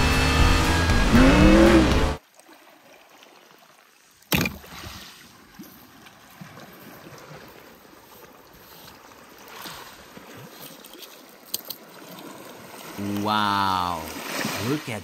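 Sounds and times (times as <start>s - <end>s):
water washing on pebble beach: 4.8s - 15.0s.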